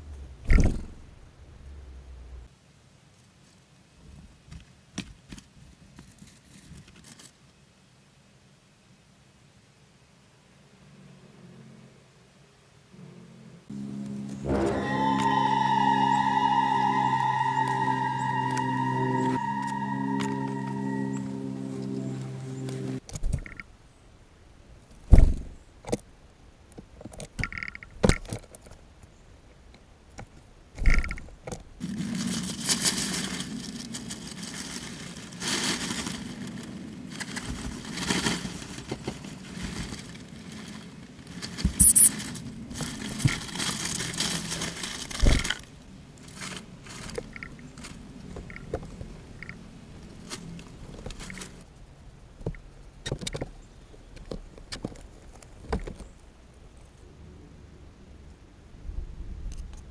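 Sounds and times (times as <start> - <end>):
rustling among seed husks: 13.7 - 23.0, 31.8 - 51.8.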